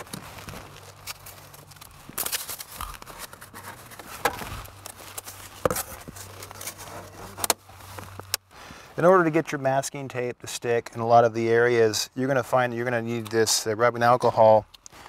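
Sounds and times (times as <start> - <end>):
cardboard scraping and rustling: 0.0 - 8.3.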